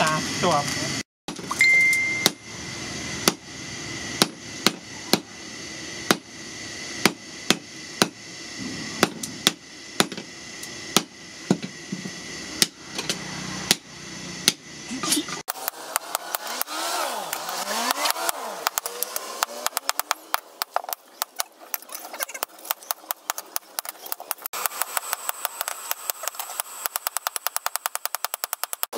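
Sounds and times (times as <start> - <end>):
hammer striking steel on anvil: 1.7 - 2.5, 12.6 - 14.6.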